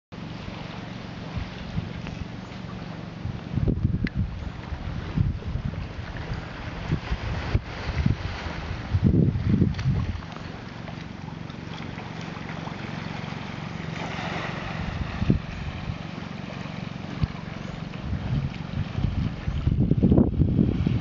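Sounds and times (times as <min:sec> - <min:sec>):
small waves washing on beach: 0:00.2 - 0:21.0
wind buffeting microphone: 0:01.3 - 0:10.6, 0:14.2 - 0:21.0.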